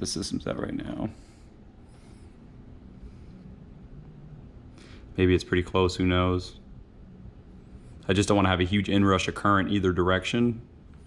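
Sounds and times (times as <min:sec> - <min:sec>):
faint low hum: 0:00.0 - 0:11.0.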